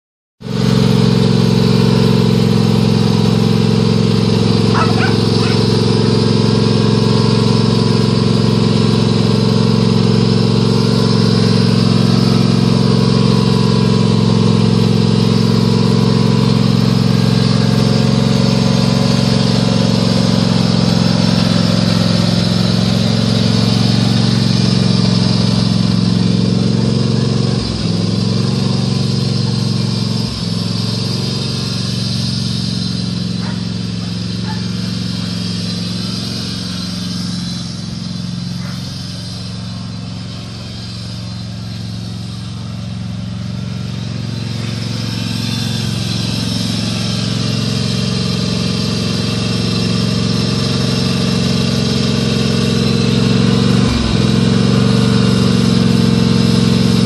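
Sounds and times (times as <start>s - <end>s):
riding lawn mower engine: 0.4s - 57.0s.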